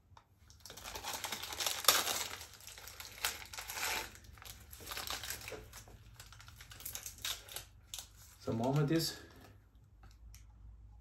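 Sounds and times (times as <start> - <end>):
plastic wrapper crinkling and tearing: 0.4 - 9.4
sharp plastic crack: 0.5 - 9.0.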